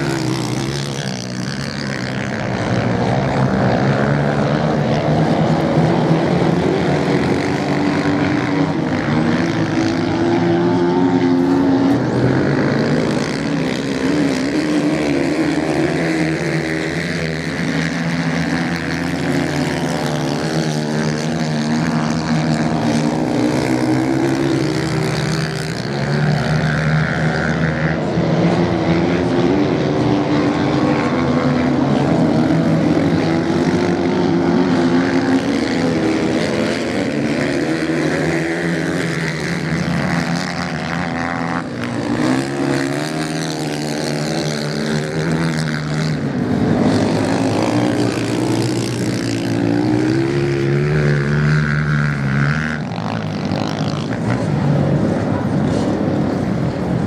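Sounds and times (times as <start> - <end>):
motorcycle engines revving: 0.0 - 57.0.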